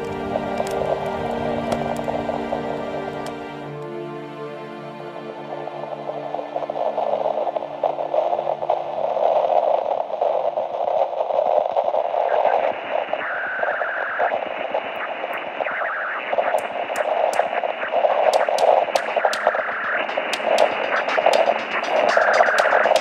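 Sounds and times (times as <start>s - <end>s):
radio static hiss and crackle: 0.0s - 3.5s, 5.3s - 23.0s
sharp high ticks: 16.5s - 23.0s.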